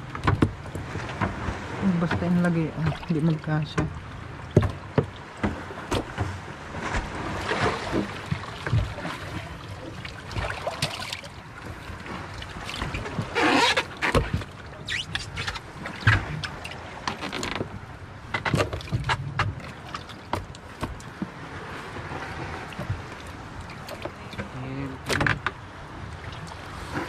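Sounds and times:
knocks and thumps: 0.2s - 0.6s, 4.5s - 7.1s
rushing scraping washes: 12.0s - 17.6s.

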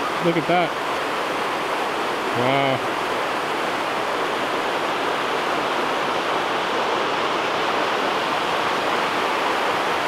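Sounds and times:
river rushing over stones: 0.0s - 10.0s.

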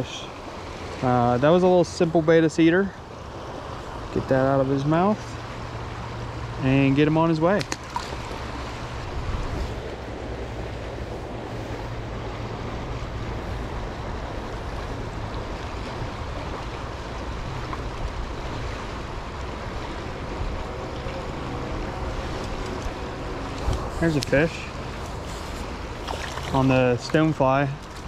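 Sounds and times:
stream water rushing: 0.0s - 28.0s
wind rumble on microphone: 7.5s - 28.0s.

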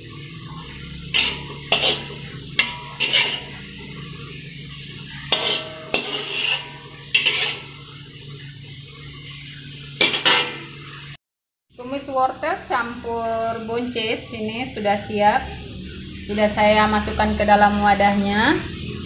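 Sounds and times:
metal spatula scraping a wok: 0.2s - 11.0s.

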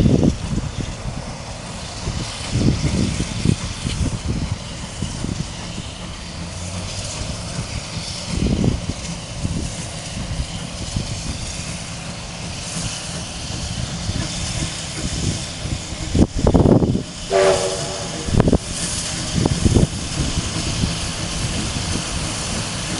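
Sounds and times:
steam hissing: 0.0s - 22.9s
steam locomotive chuffing: 0.0s - 22.9s
steam whistle blast: 17.2s - 18.6s.

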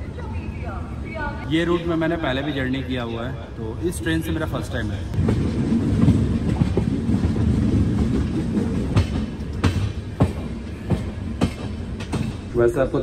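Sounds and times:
train rumbling: 0.0s - 13.0s
wheels clacking over rails: 5.0s - 13.0s.

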